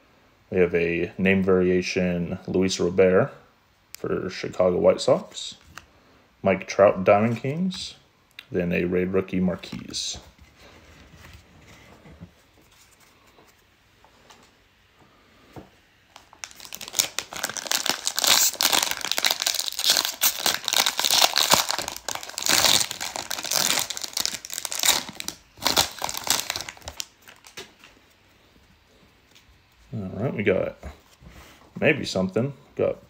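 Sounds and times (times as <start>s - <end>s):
plastic wrapper tearing and crinkling: 16.1s - 27.9s.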